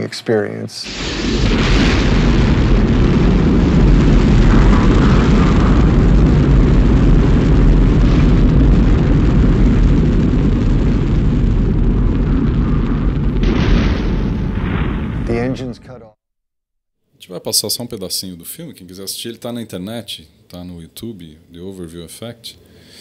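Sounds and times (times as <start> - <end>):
rocket engines rumbling: 0.0 - 16.0.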